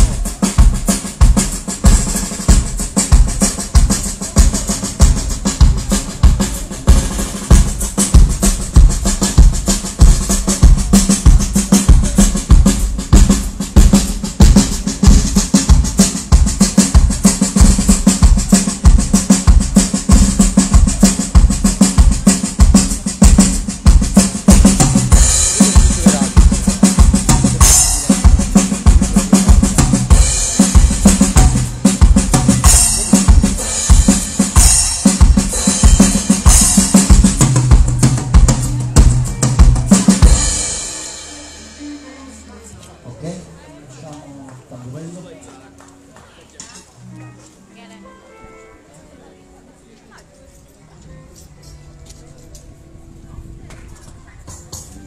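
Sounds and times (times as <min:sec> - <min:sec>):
snare drum: 0:00.0 - 0:41.0
bass drum strokes: 0:00.0 - 0:42.7
cymbals: 0:00.0 - 0:42.7.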